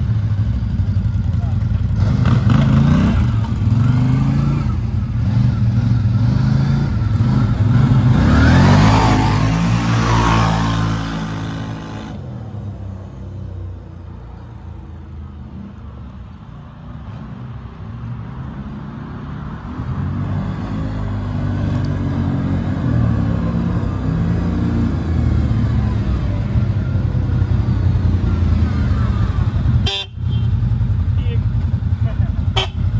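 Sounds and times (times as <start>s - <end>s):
atv engines running: 0.0s - 16.2s, 18.2s - 32.9s.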